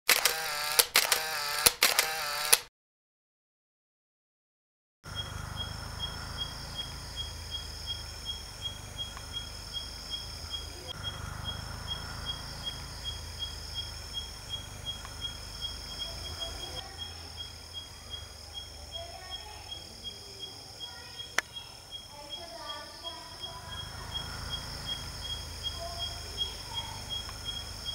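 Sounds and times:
sharp click: 0.1s - 2.7s, 21.4s - 21.6s
high insect trill: 5.1s - 27.9s.

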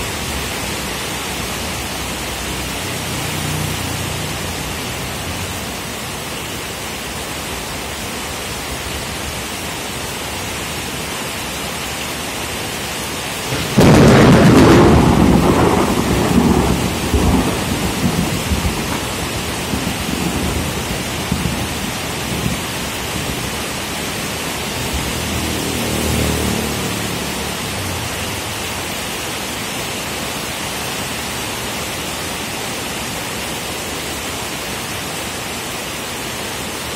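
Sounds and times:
heavy rain: 0.0s - 36.9s
thunderclap rumbling: 13.5s - 23.7s.

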